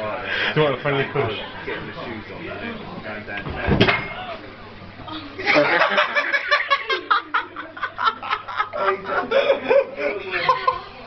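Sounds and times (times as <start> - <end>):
people laughing hard: 5.4 - 11.0.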